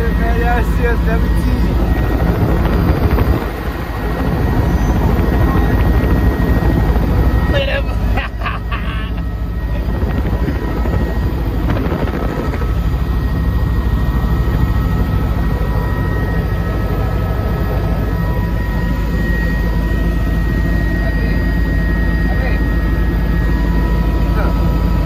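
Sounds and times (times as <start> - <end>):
faint whining tones: 0.0 - 25.0
helicopter rotor and engine: 0.0 - 25.0.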